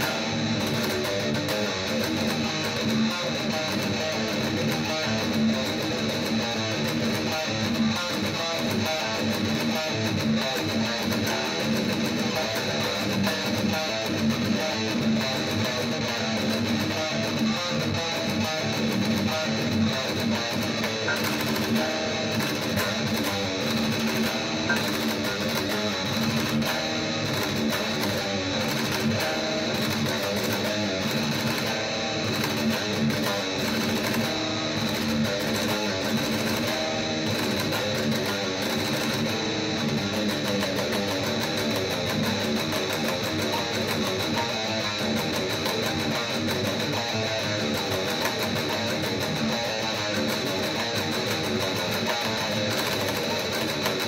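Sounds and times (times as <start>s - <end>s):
electric guitar playing: 0.0s - 54.0s.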